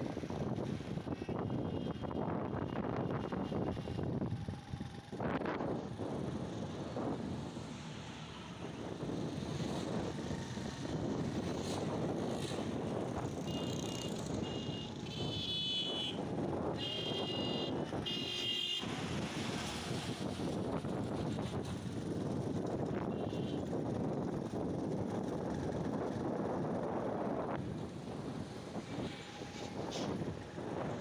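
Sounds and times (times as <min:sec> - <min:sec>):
wind buffeting microphone: 0:00.0 - 0:13.5, 0:16.2 - 0:18.1, 0:18.8 - 0:31.0
motorcycle road and engine noise: 0:00.0 - 0:31.0.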